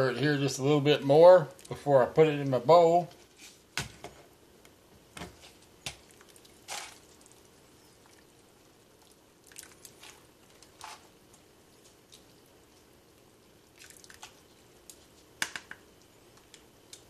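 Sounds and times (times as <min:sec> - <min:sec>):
soup splashing into a bowl: 0:09.4 - 0:10.2, 0:13.7 - 0:14.4.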